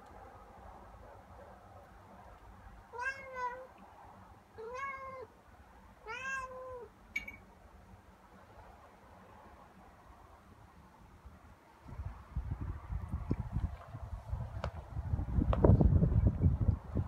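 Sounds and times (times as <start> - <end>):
cat meowing: 2.9 - 3.7, 4.6 - 5.3, 6.0 - 7.3.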